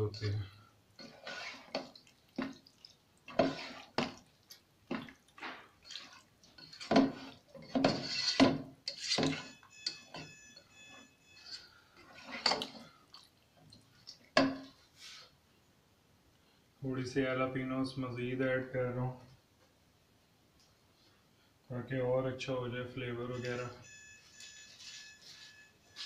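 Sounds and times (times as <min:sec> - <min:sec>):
spatula stirring thick sauce: 0:00.0 - 0:10.3, 0:10.9 - 0:15.1.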